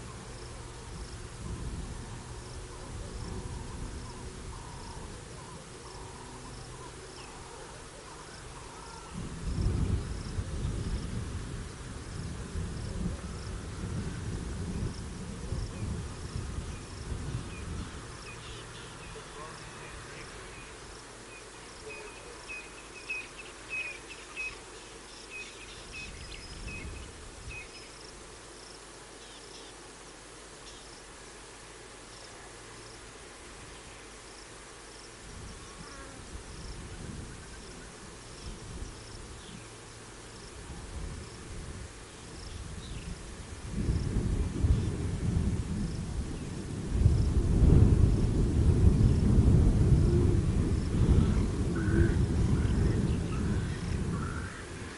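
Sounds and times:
insects chirping: 0.0 - 54.9
distant thunder rumbling: 43.7 - 54.9.

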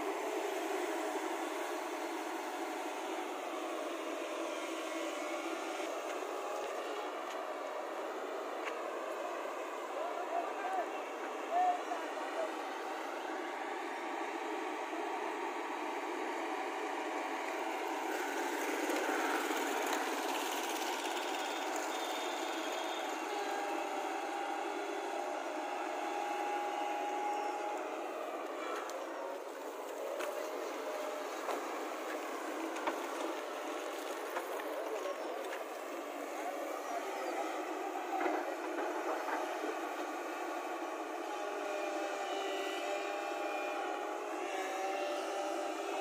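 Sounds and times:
excavator diesel engine running: 0.0 - 46.0.

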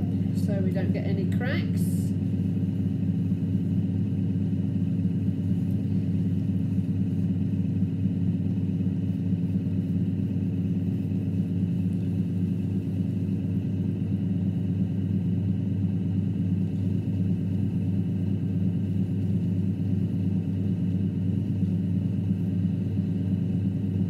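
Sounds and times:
potter's wheel motor humming: 0.0 - 24.0.

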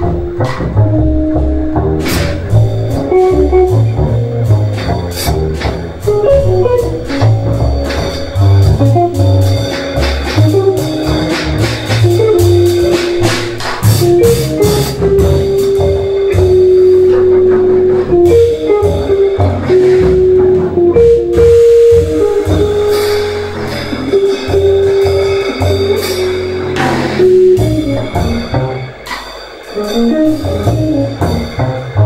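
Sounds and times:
upright bass line: 0.0 - 29.0, 30.0 - 32.0
drum kit with cymbals: 0.0 - 32.0
saxophone melody: 2.9 - 4.9, 6.0 - 29.0.

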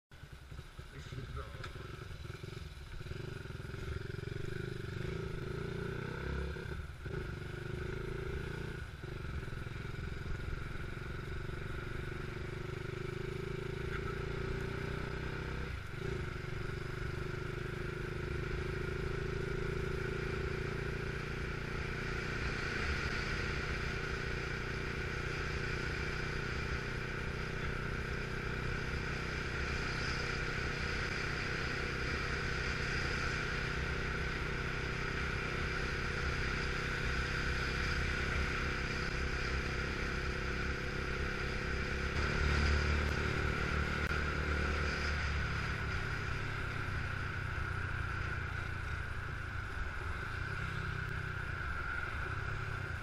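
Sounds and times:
motorcycle engine running: 0.1 - 53.0
wind and road noise: 0.1 - 53.0.

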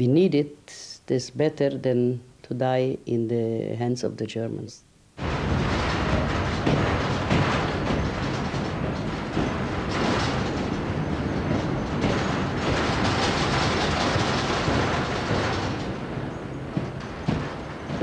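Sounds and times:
train rumbling on rails: 5.2 - 18.0.

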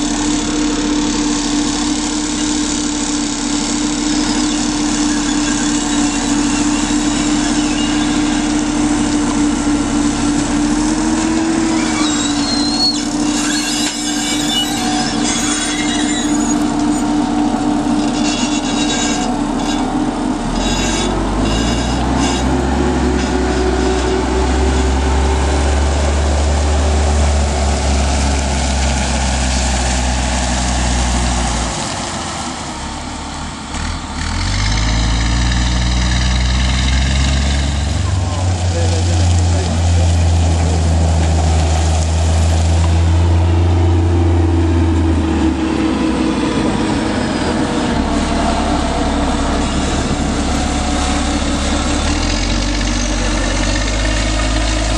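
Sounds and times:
armoured vehicle engine whining: 0.0 - 54.9
deep rumble: 35.1 - 54.9.

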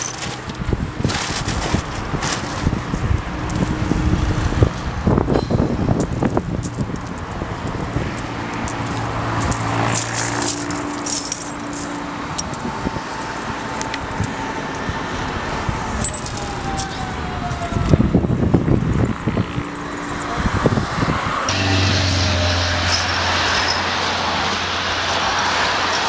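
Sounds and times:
road traffic: 0.0 - 26.0
vehicle passing by: 1.0 - 26.0
glass crystals clinking: 10.4 - 11.9.

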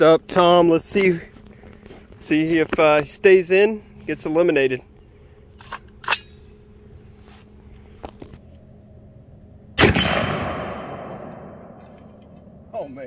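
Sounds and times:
rifle shot with echo: 9.8 - 11.8.

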